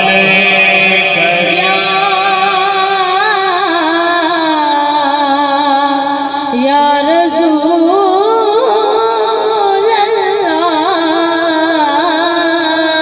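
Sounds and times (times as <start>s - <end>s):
man singing into a microphone: 0.0s - 8.0s.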